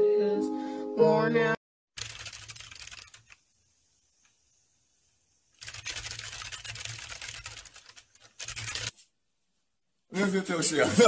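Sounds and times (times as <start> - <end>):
dense rapid clicking: 2.0 - 3.4, 5.6 - 8.9.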